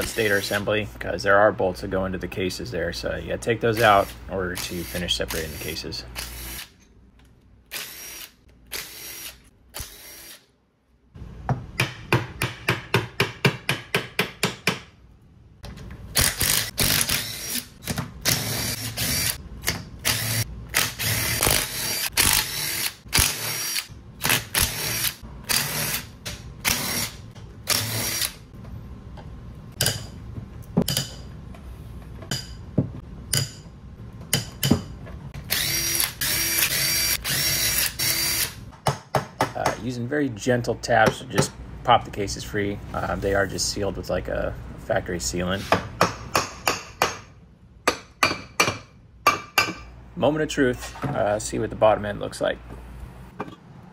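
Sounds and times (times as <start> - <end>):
cordless drill running bolts: 35.5 - 38.6.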